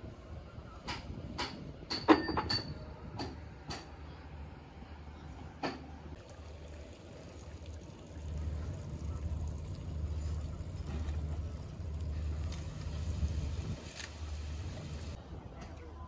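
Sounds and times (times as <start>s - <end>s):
wind buffeting microphone: 11.4s - 15.6s.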